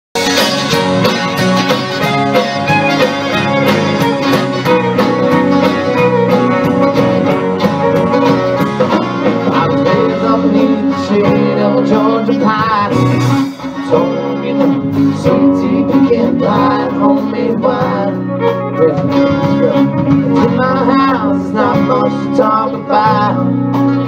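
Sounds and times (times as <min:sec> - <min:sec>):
fiddle: 0:00.2 - 0:11.6
drums steady beat: 0:00.2 - 0:18.2, 0:18.8 - 0:22.0
acoustic guitar: 0:00.2 - 0:24.0.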